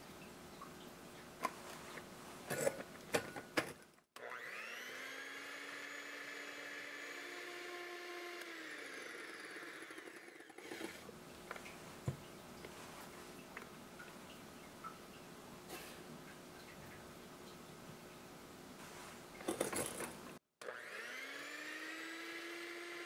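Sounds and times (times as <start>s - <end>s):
electric hand mixer whining: 4.2s - 11.1s, 20.6s - 23.0s.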